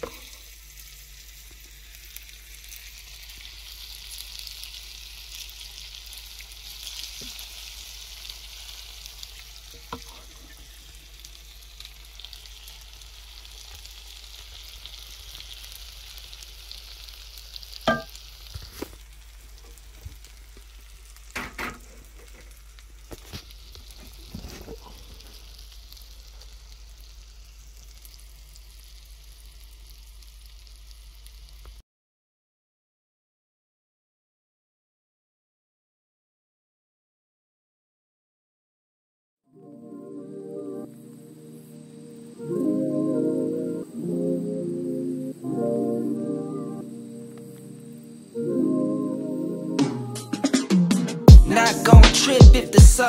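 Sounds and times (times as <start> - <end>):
pasta sizzling on a hot plate: 0.0 - 31.8, 40.9 - 43.9, 45.4 - 48.5.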